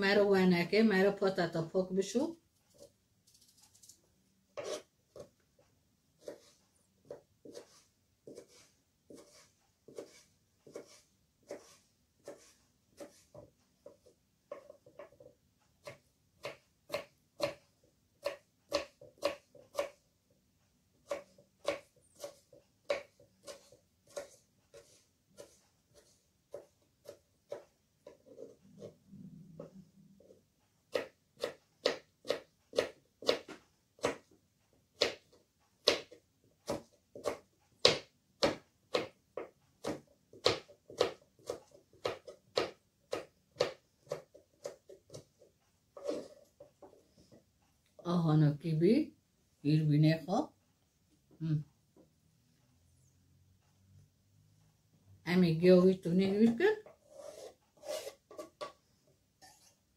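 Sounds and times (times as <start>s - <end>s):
knife chopping on cutting board: 4.6s - 5.3s, 6.2s - 17.6s, 18.2s - 20.0s, 21.0s - 28.9s, 30.9s - 34.3s, 35.0s - 45.4s.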